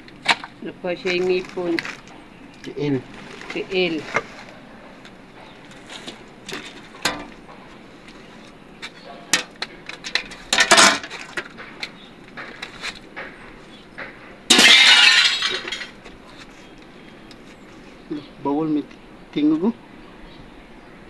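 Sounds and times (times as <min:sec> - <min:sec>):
debris scraping: 0:00.2 - 0:16.7
rubble clinking and knocking: 0:08.8 - 0:16.2.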